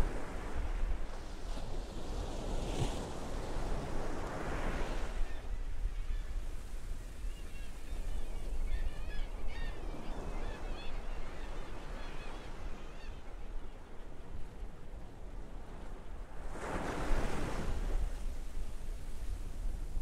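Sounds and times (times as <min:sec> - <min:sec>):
seagulls calling: 0:07.4 - 0:14.0.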